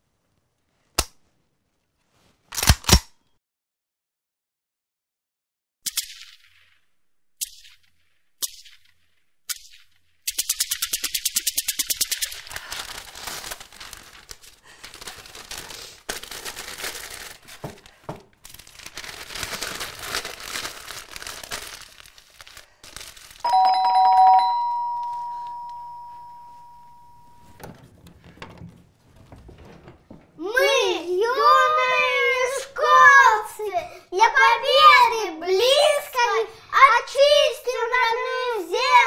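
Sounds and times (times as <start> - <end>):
newspaper rustling: 12.2 - 23.5
electric doorbell chime: 23.5 - 27.6.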